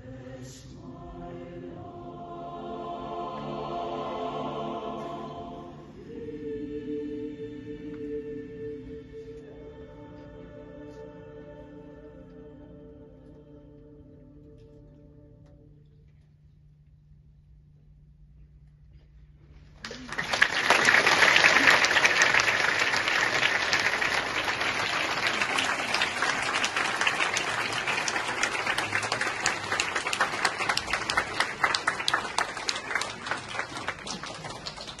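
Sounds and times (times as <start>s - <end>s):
audience applause: 19.8s - 35.0s.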